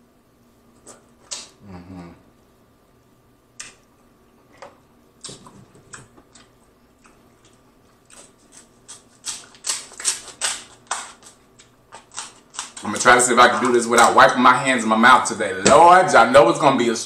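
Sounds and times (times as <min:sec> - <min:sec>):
shears cracking crab shell: 0:08.2 - 0:14.2.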